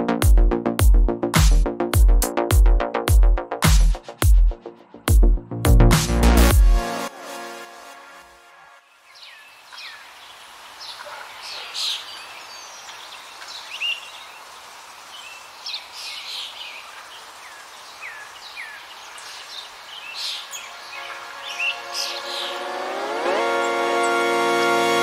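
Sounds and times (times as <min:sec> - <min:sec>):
steady background hiss: 0:08.8 - 0:22.4
birds chirping and whistling: 0:20.0 - 0:22.7.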